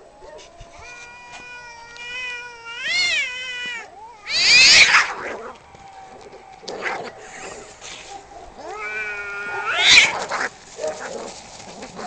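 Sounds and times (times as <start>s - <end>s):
cat yowling: 0.7s - 10.5s
cat screeching: 0.8s - 5.5s, 8.6s - 10.5s.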